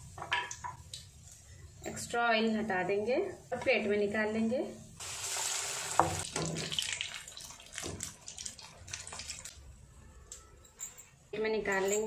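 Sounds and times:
batter deep-frying in oil: 0:04.8 - 0:09.6.

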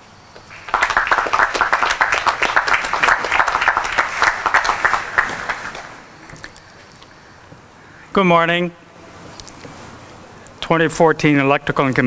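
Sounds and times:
audience applauding: 0:00.4 - 0:06.1.

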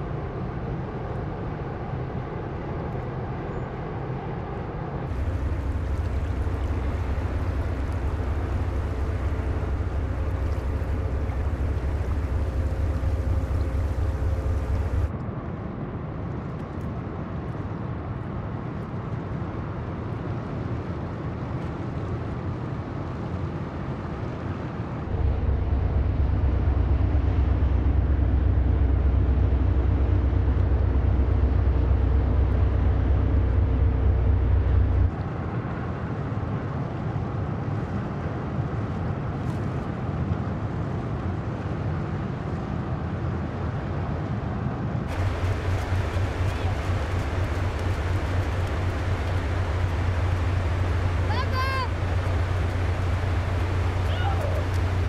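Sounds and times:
ferry engines rumbling: 0:00.0 - 0:15.4, 0:24.1 - 0:38.8, 0:40.6 - 0:55.0
faint steady hum: 0:04.4 - 0:15.2, 0:24.9 - 0:35.3, 0:45.0 - 0:55.0.

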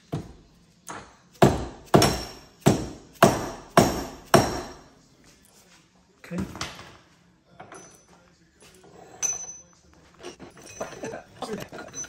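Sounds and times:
hammer striking metal: 0:00.9 - 0:04.9.

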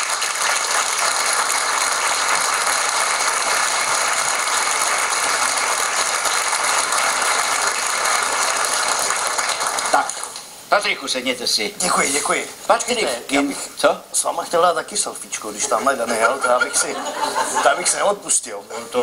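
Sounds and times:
audience applauding: 0:00.0 - 0:10.5.

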